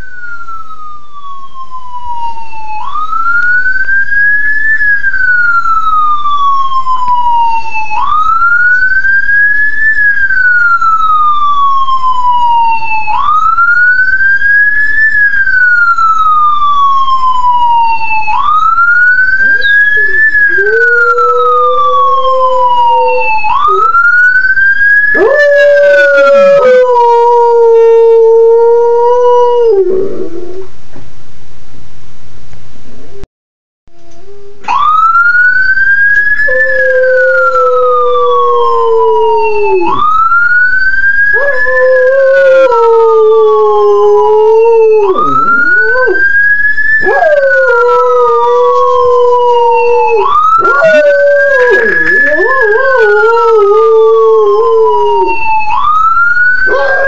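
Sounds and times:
ambulance siren wailing: 0:00.0 - 0:30.4, 0:34.1 - 0:57.0
dog howling: 0:19.4 - 0:24.0, 0:25.1 - 0:30.7, 0:36.4 - 0:40.0, 0:41.3 - 0:46.3, 0:47.0 - 0:55.5, 0:56.5 - 0:57.0.

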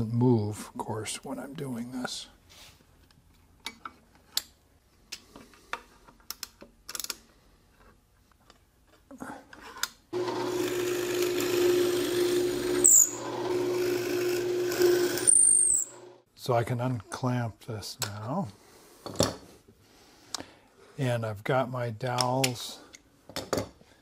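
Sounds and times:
drill press humming: 0:10.2 - 0:16.2
drill bit squealing: 0:12.5 - 0:13.4, 0:14.1 - 0:16.1.

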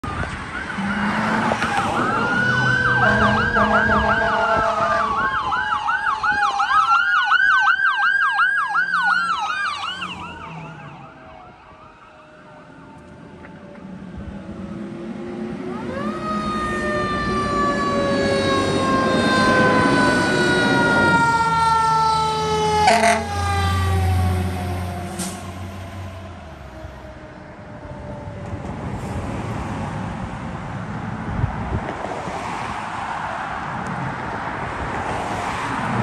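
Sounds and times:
ambulance siren warbling: 0:00.0 - 0:29.0
fire truck engine passing: 0:00.0 - 0:36.0
fire engine siren winding: 0:00.1 - 0:13.9, 0:15.7 - 0:27.2
siren short loud burst: 0:00.6 - 0:06.6, 0:15.7 - 0:26.4.

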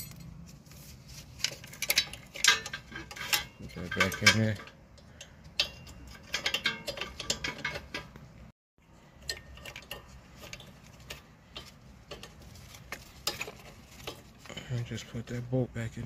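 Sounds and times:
light clicks and metal clinks: 0:01.5 - 0:08.2.

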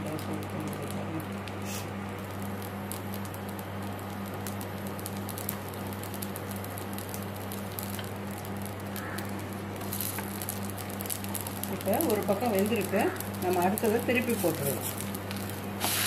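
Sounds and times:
batter sizzling in oil: 0:00.0 - 0:16.0.

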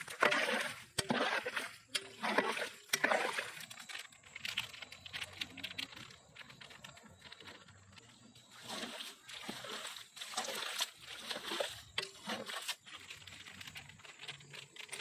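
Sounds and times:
ladle stirring curry in pot: 0:00.0 - 0:04.2.

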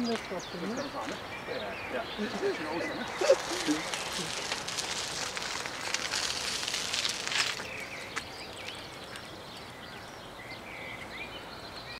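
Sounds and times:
bicycle passing with clicks: 0:03.4 - 0:09.7
bird chirps: 0:06.8 - 0:11.9.

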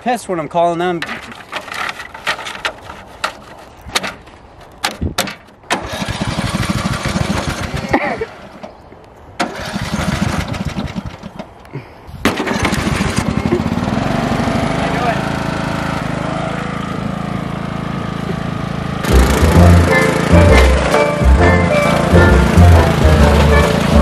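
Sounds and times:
lawn mower engine running: 0:05.7 - 0:08.7, 0:09.4 - 0:11.6, 0:12.2 - 0:24.0.

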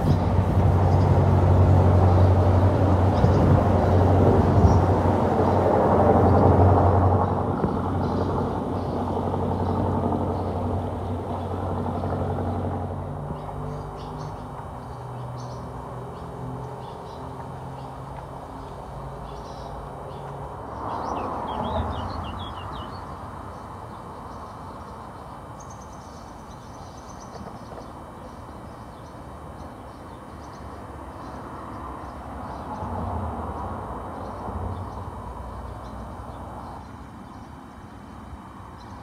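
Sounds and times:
road traffic on bridge: 0:00.0 - 0:39.0
birds chirping: 0:07.2 - 0:33.0.

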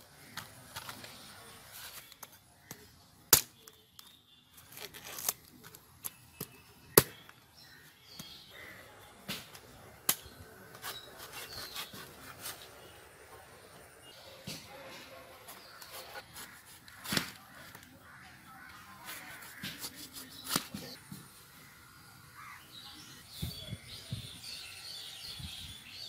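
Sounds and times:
knife chopping fruit husk: 0:06.1 - 0:07.3, 0:09.2 - 0:12.9, 0:15.4 - 0:17.7, 0:19.0 - 0:21.0.

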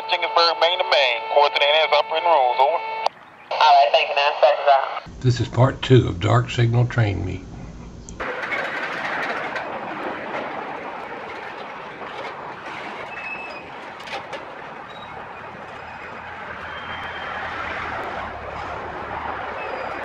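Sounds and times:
freight train rolling rumble: 0:05.1 - 0:20.0
faint high wheel squeals: 0:12.6 - 0:17.9, 0:19.5 - 0:20.0.

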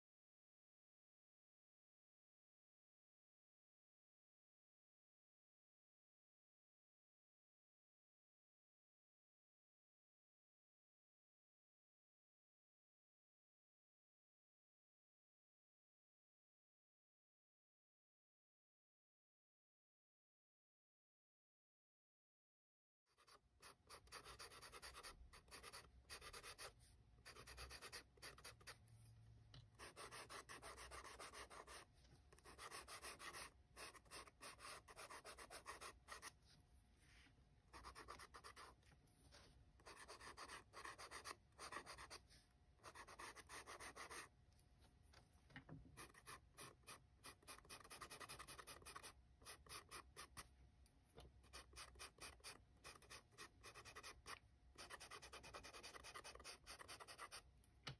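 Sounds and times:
pencil scratching on paper: 0:23.1 - 0:29.2, 0:29.8 - 0:36.5, 0:37.7 - 0:44.3, 0:46.0 - 0:50.5, 0:51.4 - 0:57.5.

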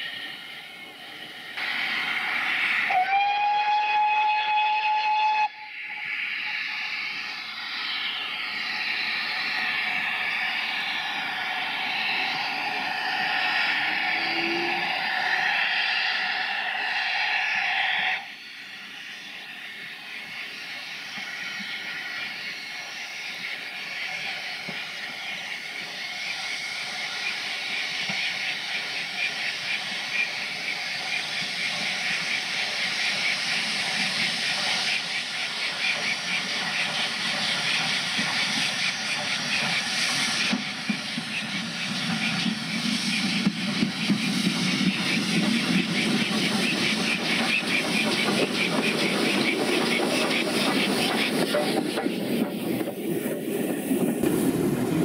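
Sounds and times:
steam hissing: 0:00.0 - 0:55.0
steam locomotive whistle: 0:02.5 - 0:06.9, 0:12.4 - 0:18.6.

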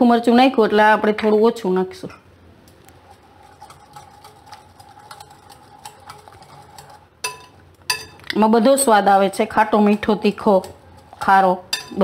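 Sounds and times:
whisk ticking against glass bowl: 0:03.3 - 0:08.2, 0:09.6 - 0:12.0.

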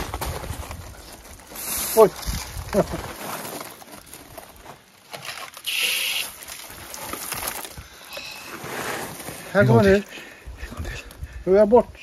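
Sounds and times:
water spraying from hose: 0:05.6 - 0:06.4.

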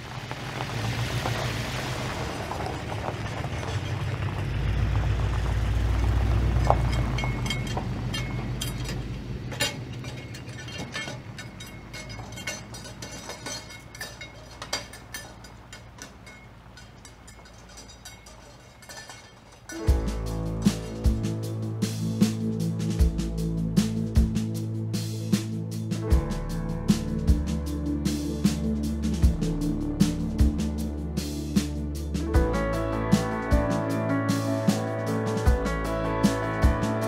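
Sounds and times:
tyres rolling over gravel: 0:00.0 - 0:21.2
car engine rumbling: 0:00.0 - 0:37.0.

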